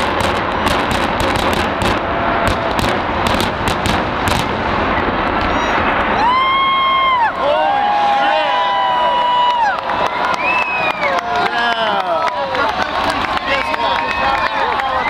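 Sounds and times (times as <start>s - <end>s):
explosive bangs and cracks: 0.0s - 7.2s
structure collapsing rumble: 0.0s - 9.4s
spectator whooping: 5.5s - 15.0s.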